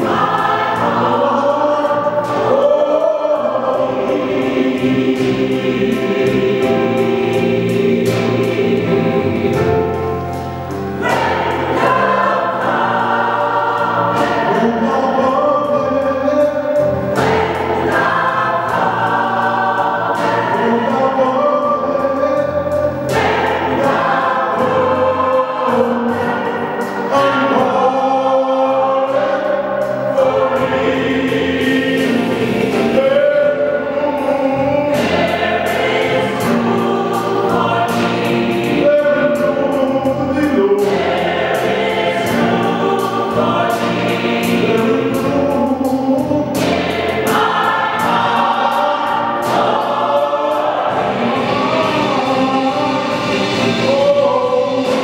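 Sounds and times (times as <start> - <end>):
gospel choir singing: 0.0 - 55.0
sharp percussive hits: 3.8 - 15.5, 16.2 - 21.5, 22.2 - 33.5.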